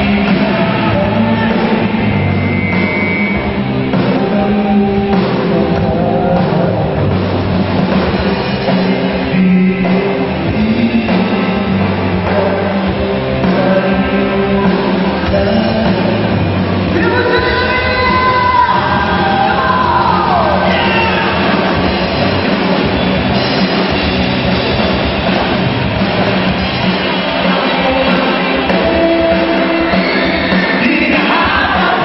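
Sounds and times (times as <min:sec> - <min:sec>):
person singing: 0:00.0 - 0:02.5, 0:03.4 - 0:07.2, 0:08.7 - 0:21.6, 0:27.4 - 0:32.0
live rock band playing: 0:00.0 - 0:32.0.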